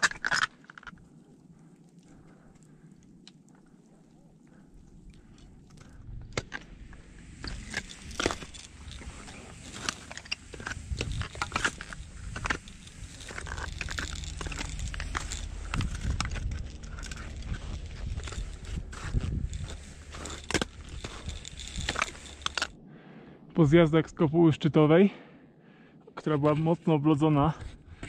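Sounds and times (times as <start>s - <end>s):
climbing gear clicks and scrapes: 0.0s - 22.8s
climber's footsteps crunching: 5.3s - 22.8s.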